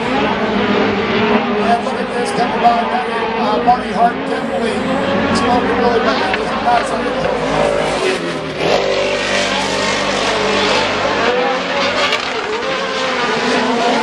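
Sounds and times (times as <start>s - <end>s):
race truck engines revving: 0.0s - 14.0s.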